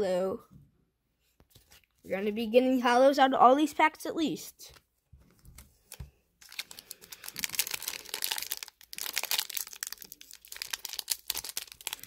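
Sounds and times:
foil wrapper crinkling: 5.8 - 12.0.

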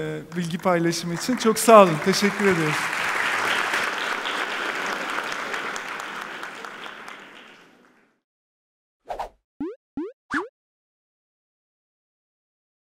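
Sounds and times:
audience applauding: 0.3 - 8.2.

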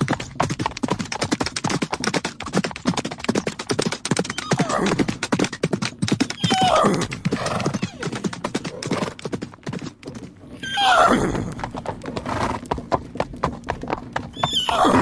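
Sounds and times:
horse hooves clip-clopping: 0.0 - 15.0
horse whinnying: 4.2 - 5.1, 6.3 - 9.2, 10.5 - 12.6, 14.3 - 15.0.

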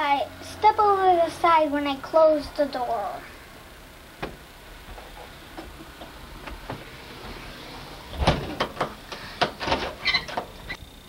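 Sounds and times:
wooden door closing thud: 4.2 - 4.4, 8.1 - 9.9.

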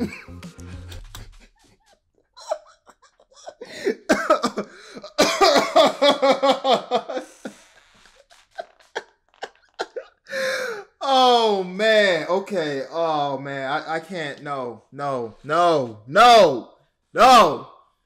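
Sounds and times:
man laughing muffled: 0.0 - 1.6, 2.4 - 7.4.

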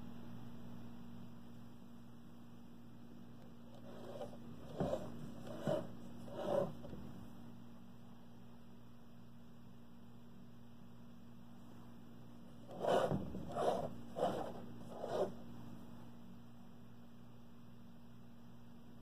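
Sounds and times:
low steady hum: 0.0 - 19.0
frame scraping against wall: 3.8 - 7.0, 12.7 - 15.3.

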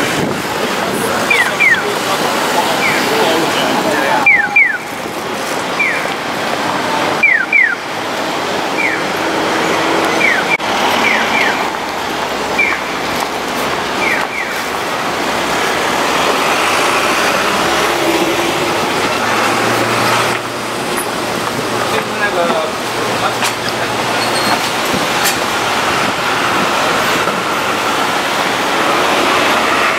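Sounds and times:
crowd noise: 0.0 - 29.9
street traffic: 0.0 - 29.9
crossing signal chirping: 1.2 - 2.0, 2.7 - 5.1, 5.7 - 6.2, 7.1 - 7.9, 8.7 - 11.7, 12.5 - 13.0, 13.9 - 14.8.

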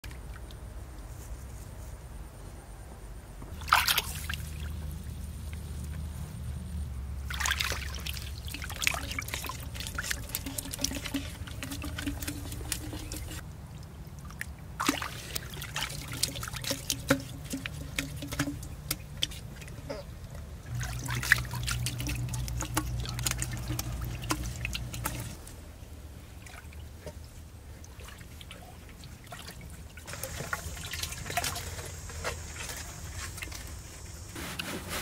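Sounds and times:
water pouring from pipe: 7.3 - 13.4, 14.8 - 19.7, 20.7 - 25.5, 29.1 - 33.9.

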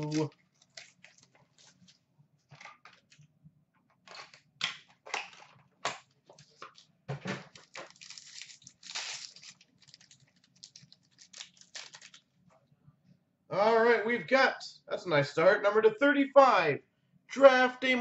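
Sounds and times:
packaging ripping and rustling: 0.0 - 2.0, 7.5 - 12.2.

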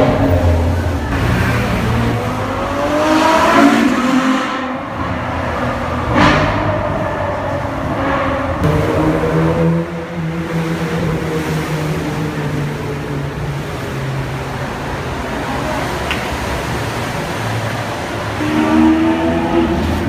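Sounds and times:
car engine accelerating in tunnel: 0.0 - 20.0
lower steady engine note: 0.0 - 20.0.

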